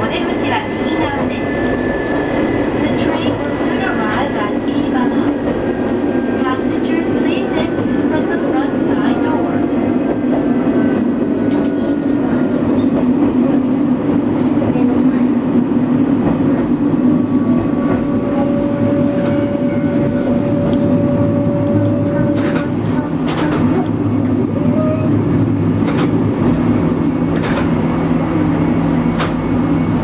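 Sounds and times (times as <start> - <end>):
railcar engine drone: 0.0 - 30.0.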